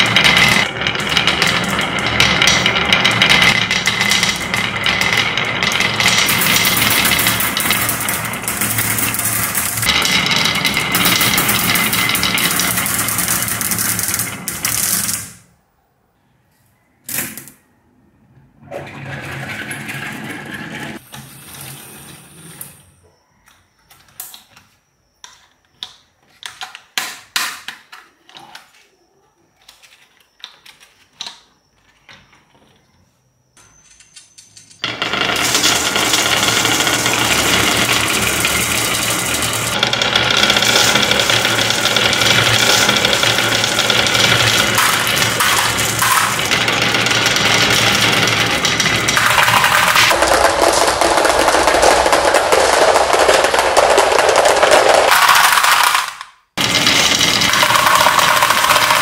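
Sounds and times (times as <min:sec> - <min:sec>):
marbles clattering down wooden track: 0:00.0 - 0:15.5, 0:33.7 - 0:59.0
plastic toy truck clicks and knocks: 0:47.0 - 0:59.0.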